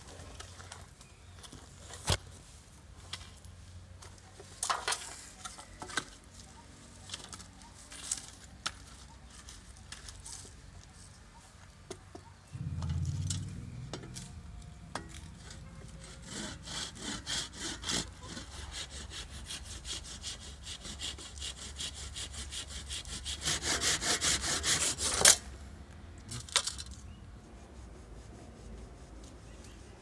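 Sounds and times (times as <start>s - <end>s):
hand saw cutting wood: 15.9s - 25.5s.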